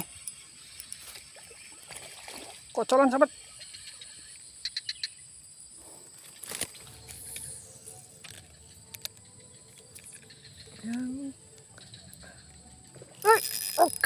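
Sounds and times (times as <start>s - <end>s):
insects droning: 0.0s - 14.0s
small clicks: 13.2s - 14.0s.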